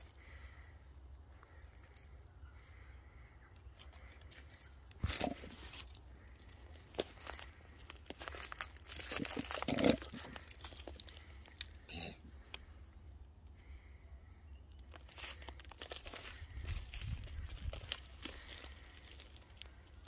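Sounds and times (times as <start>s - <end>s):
claws scraping tree bark: 3.7s - 11.7s, 14.9s - 20.0s.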